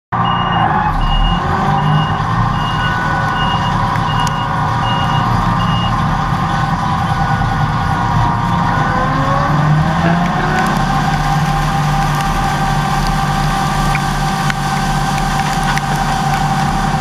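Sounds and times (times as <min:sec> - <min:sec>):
high electronic beeper: 0:00.1 - 0:06.0
combine harvester running: 0:00.2 - 0:17.0.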